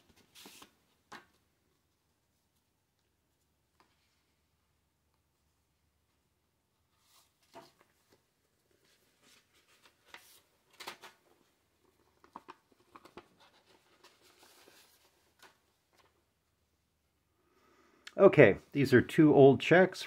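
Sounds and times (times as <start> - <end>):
paper and card rustling: 0.0 - 1.4, 6.9 - 16.2.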